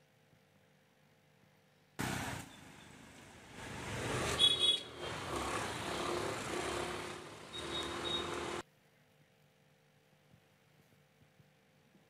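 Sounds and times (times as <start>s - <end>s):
traffic noise: 2.0s - 8.7s.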